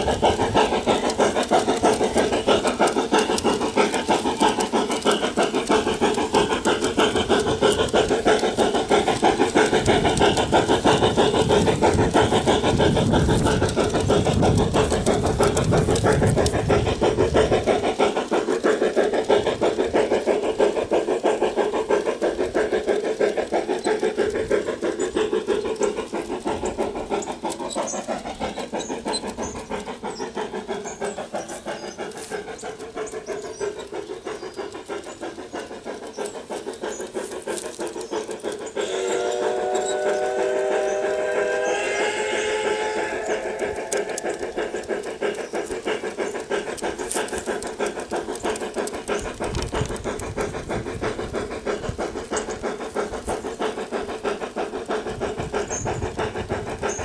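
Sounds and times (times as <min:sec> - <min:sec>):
model locomotive steam chuffs: 0:00.0 - 0:57.0.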